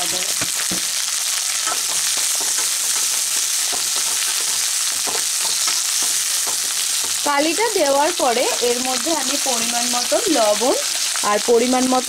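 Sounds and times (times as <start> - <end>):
onions sizzling in hot oil: 0.0 - 12.0
wooden spatula scraping a pan: 1.6 - 7.2.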